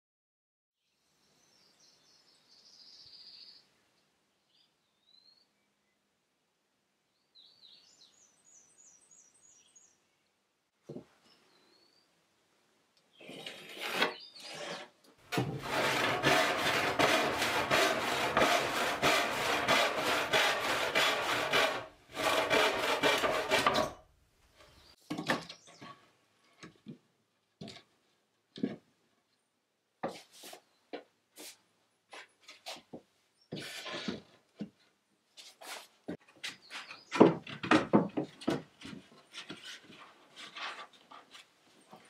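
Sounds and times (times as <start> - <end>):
handsaw cutting wood: 13.2 - 24.0.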